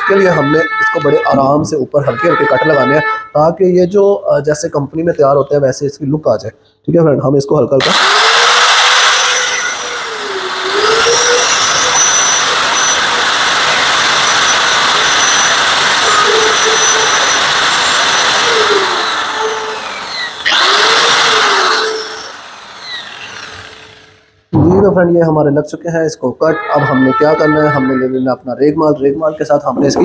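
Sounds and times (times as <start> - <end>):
angle grinder cutting metal: 7.8 - 24.5.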